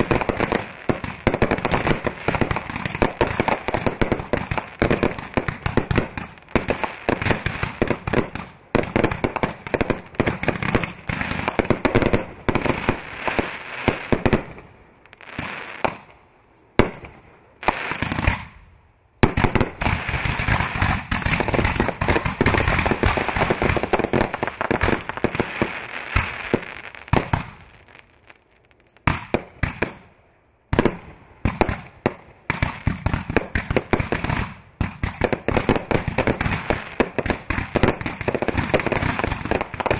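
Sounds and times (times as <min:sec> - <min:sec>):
fireworks bursting: 0:00.0 - 0:30.0.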